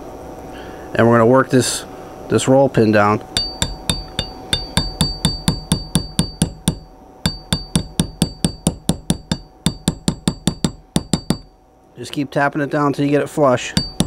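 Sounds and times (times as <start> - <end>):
hammer tapping metal punch: 3.4 - 11.6, 13.7 - 14.0.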